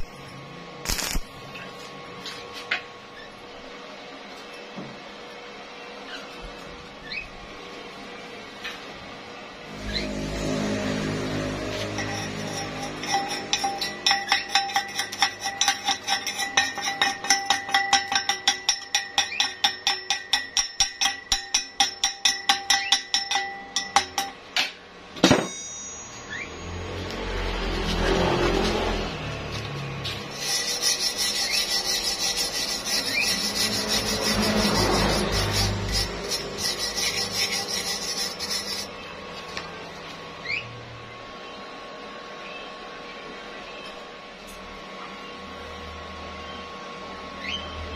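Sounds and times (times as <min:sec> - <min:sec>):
wire brush scrubbing steel: 0:09.7 - 0:24.4, 0:29.5 - 0:39.5
hammer tapping on steel pipe: 0:13.1 - 0:24.7.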